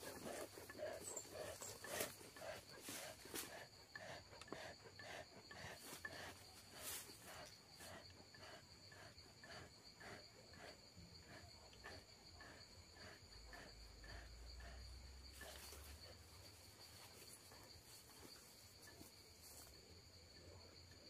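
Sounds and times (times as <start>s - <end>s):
high trill of insects: 0.0s - 4.2s.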